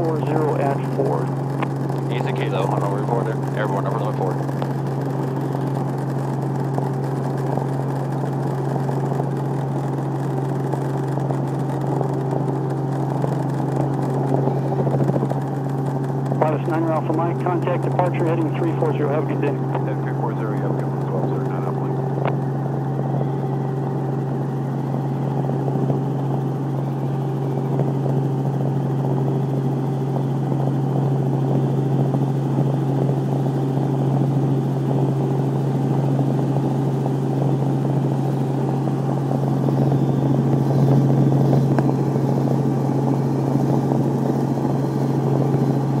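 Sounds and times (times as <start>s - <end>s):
helicopter engine and rotor drone: 0.0s - 46.0s.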